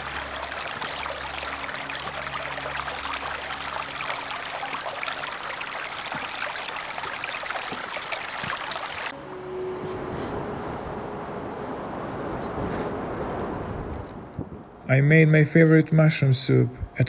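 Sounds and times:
stream flowing over stones: 0.0s - 9.2s.

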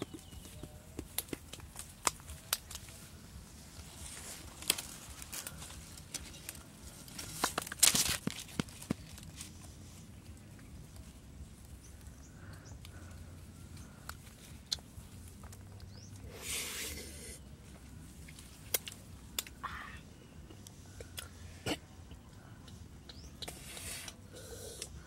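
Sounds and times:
hands handling coconut clicks: 0.0s - 3.0s, 4.4s - 16.2s, 18.2s - 19.6s, 22.2s - 24.2s
dry twigs scraping rustle: 1.6s - 12.2s.

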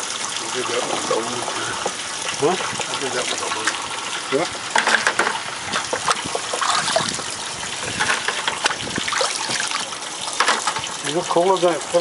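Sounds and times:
water running into tank: 0.0s - 12.0s
small splashes in water: 5.7s - 10.9s.

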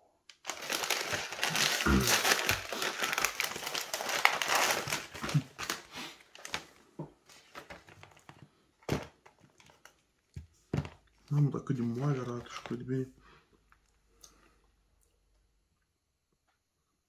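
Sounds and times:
food packaging crinkling: 0.3s - 10.0s.

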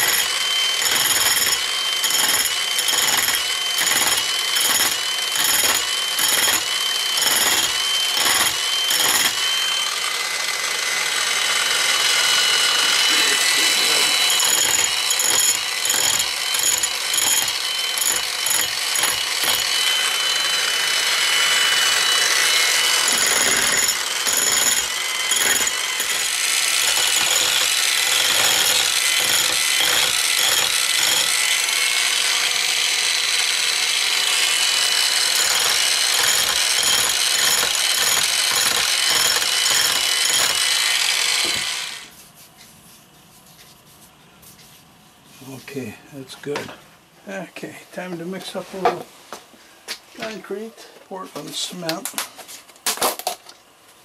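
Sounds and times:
grinder grinding concrete: 0.0s - 42.2s.

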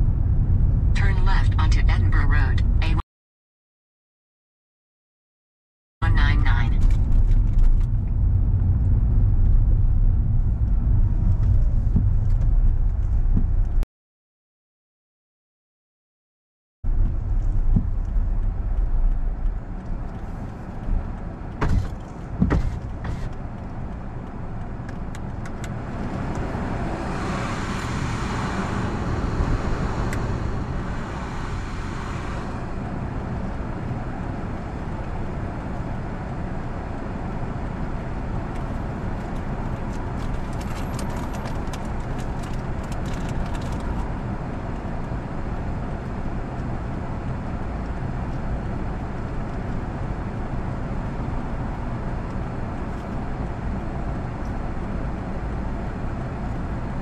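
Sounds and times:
road traffic rumble: 0.0s - 3.0s, 6.0s - 13.8s, 16.9s - 57.0s
car engine idling: 16.9s - 36.2s.

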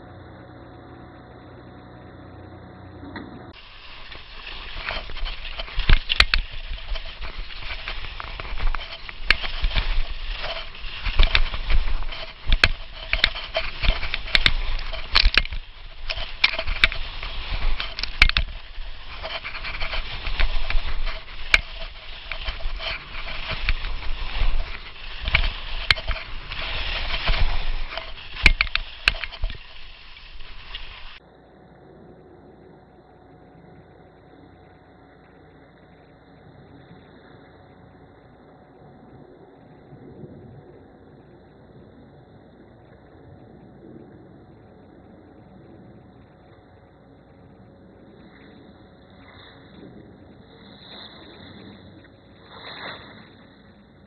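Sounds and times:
skis scraping on snow: 3.6s - 31.2s
sharp clicks and knocks: 4.1s - 31.2s.

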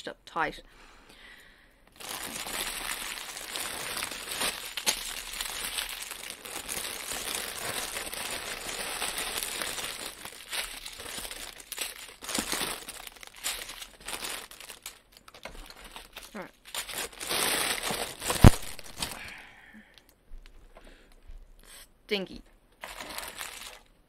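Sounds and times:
plastic packaging crackling: 1.9s - 19.3s, 22.8s - 24.0s.

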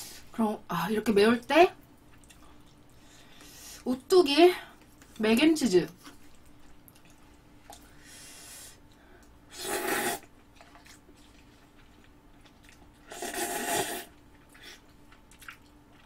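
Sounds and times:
noodles slurped: 9.5s - 16.0s.

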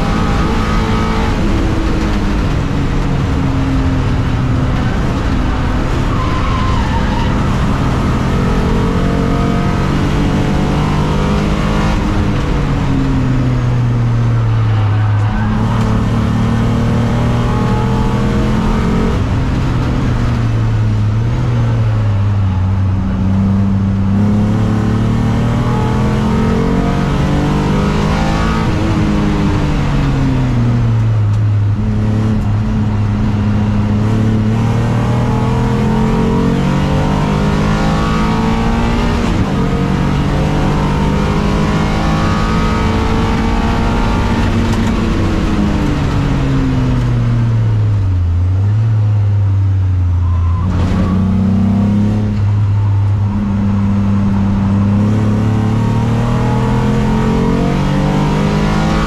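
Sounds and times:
race car engine from inside cabin: 0.0s - 59.0s.

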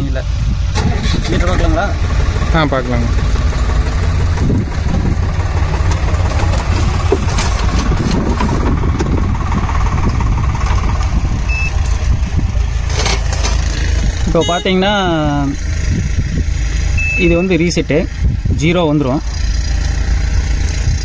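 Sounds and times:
tractor diesel engine idling: 0.2s - 21.0s
brief beep: 11.5s - 11.8s, 14.4s - 14.8s, 17.0s - 17.5s.

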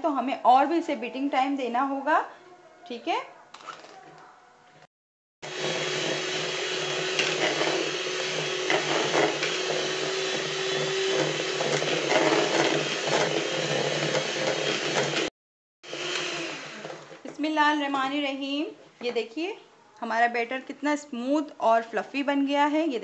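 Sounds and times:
electric hand mixer running: 5.4s - 17.2s.

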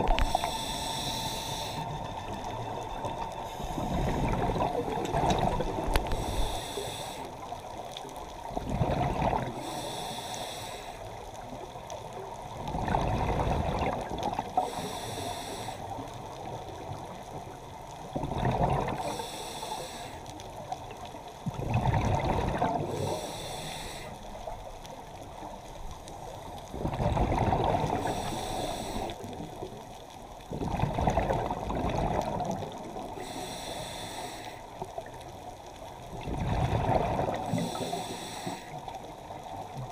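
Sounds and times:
regulator breathing hiss: 0.0s - 2.0s, 6.0s - 7.4s, 9.6s - 11.2s, 14.6s - 16.1s, 19.0s - 20.4s, 22.9s - 24.4s, 28.0s - 29.2s, 33.2s - 34.8s, 37.5s - 38.9s
bubbles rushing underwater: 8.6s - 9.5s, 12.7s - 14.5s, 18.2s - 19.0s, 21.5s - 22.9s, 26.7s - 28.1s, 30.6s - 33.0s, 36.1s - 37.7s.

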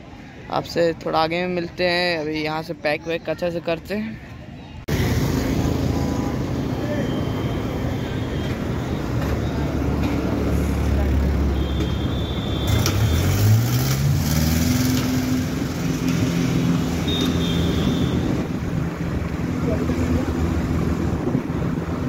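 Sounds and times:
low traffic engine drone: 4.1s - 22.0s
vehicle engine accelerating: 12.5s - 22.0s.

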